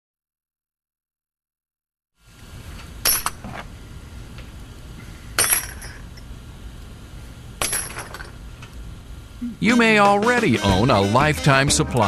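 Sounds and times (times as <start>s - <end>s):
metal drill bits clinking: 5.4s - 6.2s.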